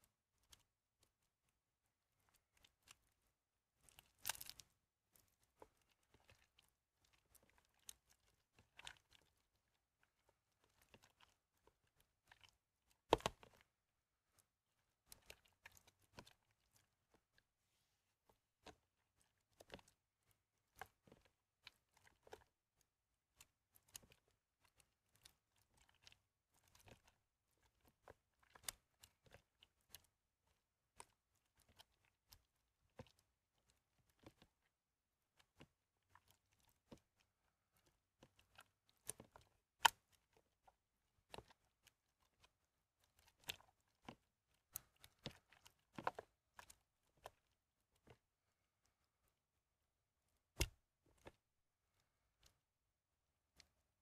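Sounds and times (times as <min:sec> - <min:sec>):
soap crunching in hand: 0:04.0 - 0:04.7.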